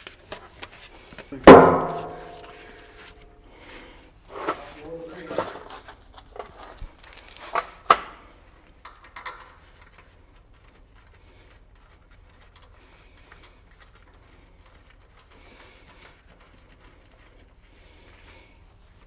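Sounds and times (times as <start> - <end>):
low steady hum: 1.4 - 3.6
bolt being threaded by hand: 8.8 - 10.2.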